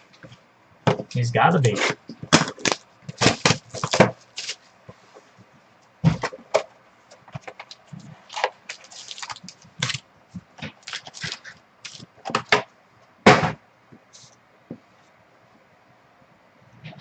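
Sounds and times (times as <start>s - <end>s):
taps clicks and rustles of cards: 7.1s - 12.7s.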